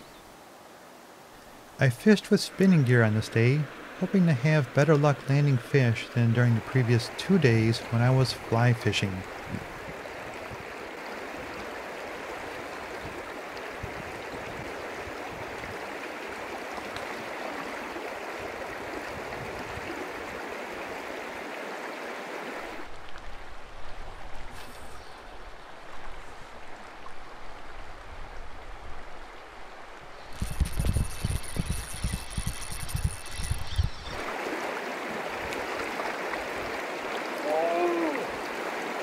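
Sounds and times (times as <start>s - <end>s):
creek water rushing over rocks: 0.3s - 24.6s, 34.1s - 39.0s.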